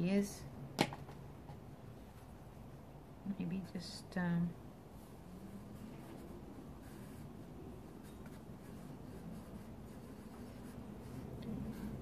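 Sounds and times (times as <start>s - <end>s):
low room hum: 0.0s - 12.0s
pencil scratching on paper: 5.3s - 12.0s.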